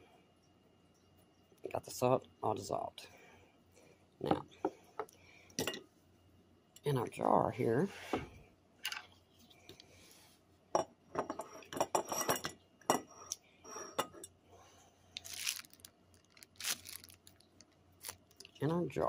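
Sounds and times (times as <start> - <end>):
glassware clinking: 10.8 - 13.1.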